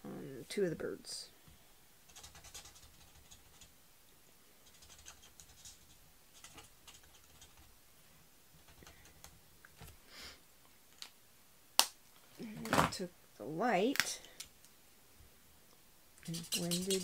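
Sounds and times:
marker scratching on cardstock: 16.2 - 17.0.

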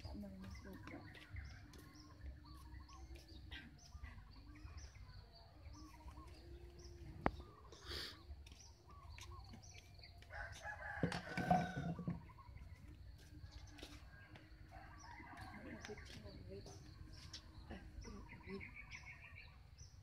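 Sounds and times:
small birds chirping: 0.0 - 20.0
rooster crowing: 10.3 - 12.2.

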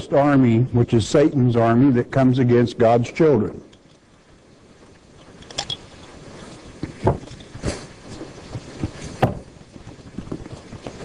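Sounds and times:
rustling: 4.8 - 11.0
sharp knocks: 9.2 - 9.5.

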